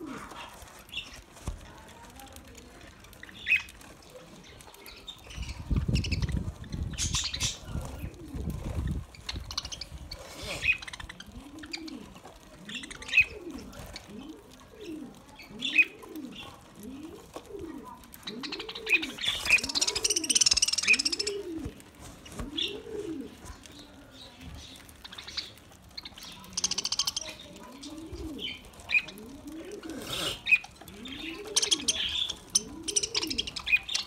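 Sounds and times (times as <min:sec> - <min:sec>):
dove cooing: 0:00.0 - 0:00.8, 0:05.6 - 0:24.2, 0:26.4 - 0:34.0
wing flapping: 0:00.0 - 0:24.0.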